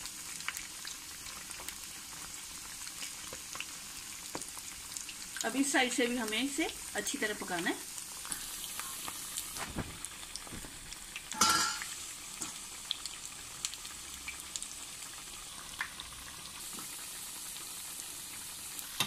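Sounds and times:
food sizzling in hot oil: 0:00.0 - 0:19.0
oil crackles: 0:07.6 - 0:17.1.

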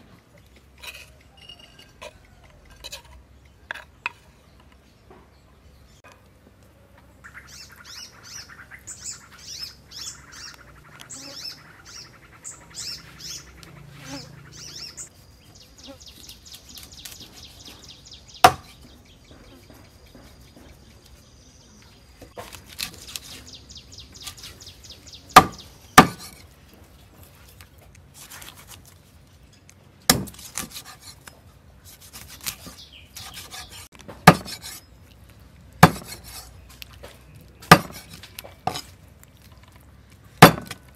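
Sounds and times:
birds chirping: 0:00.0 - 0:27.9, 0:31.7 - 0:38.9
quiet cutting and handling sounds: 0:15.9 - 0:17.9, 0:19.6 - 0:25.1, 0:26.1 - 0:40.9.

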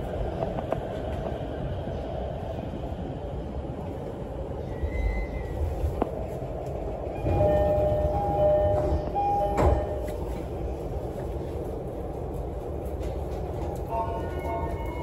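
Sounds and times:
train interior rumble: 0:00.0 - 0:15.0
train doors thumping shut: 0:07.2 - 0:10.3.

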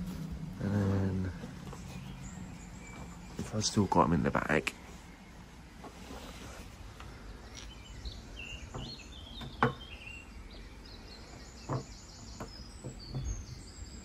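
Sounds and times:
birds chirping: 0:00.0 - 0:14.0
short knocks: 0:08.6 - 0:10.0, 0:11.3 - 0:13.6.

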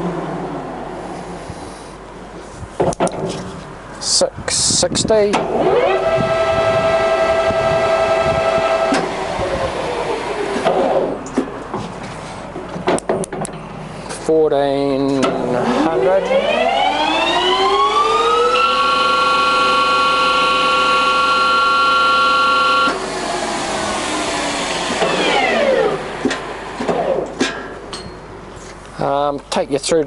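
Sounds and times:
lathe gear whine: 0:05.4 - 0:11.3, 0:15.4 - 0:27.4.

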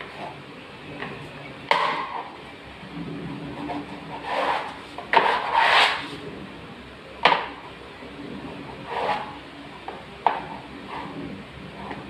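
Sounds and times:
pad scraping over a wall: 0:03.0 - 0:06.3, 0:08.4 - 0:09.4, 0:10.2 - 0:12.0.

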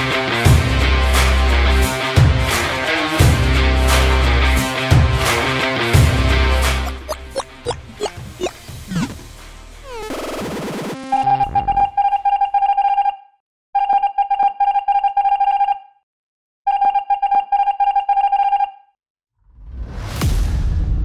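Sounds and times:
electronic beeping: 0:09.9 - 0:10.4.

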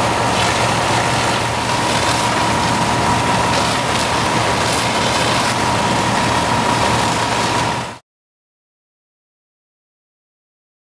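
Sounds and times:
fire truck engine running: 0:00.0 - 0:08.0
pump whine: 0:00.0 - 0:08.0
water rushing: 0:00.0 - 0:08.0.

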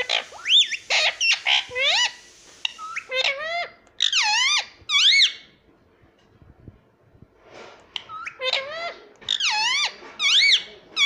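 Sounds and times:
parakeet calling: 0:00.0 - 0:05.5, 0:08.0 - 0:11.0.

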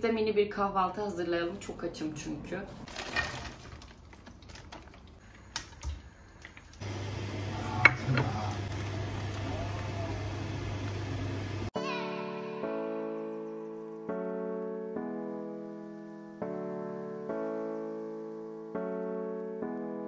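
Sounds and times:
packet rustling: 0:02.9 - 0:06.8.

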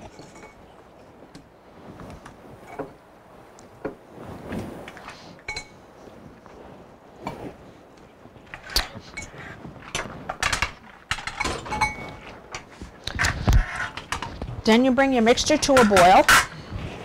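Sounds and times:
utensils and dishes clinking: 0:00.0 - 0:00.7, 0:05.4 - 0:05.8, 0:08.5 - 0:14.4, 0:15.4 - 0:16.6.

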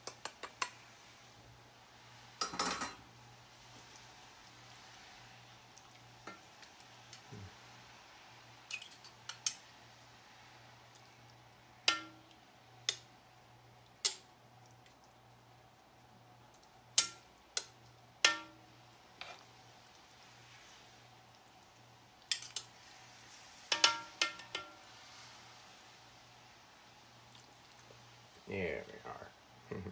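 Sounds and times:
metal utensils clanking on pot: 0:02.4 - 0:03.0, 0:11.9 - 0:12.2, 0:17.0 - 0:18.6, 0:22.3 - 0:22.7, 0:23.7 - 0:24.8.

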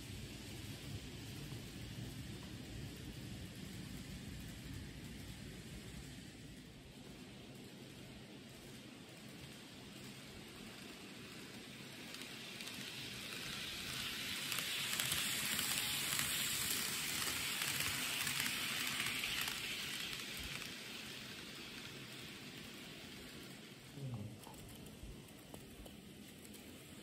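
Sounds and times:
model train rattling on track: 0:00.0 - 0:27.0.

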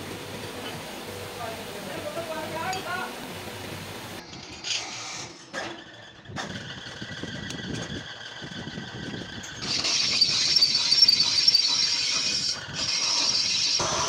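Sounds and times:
high scraping screech of cutting: 0:09.6 - 0:14.0.

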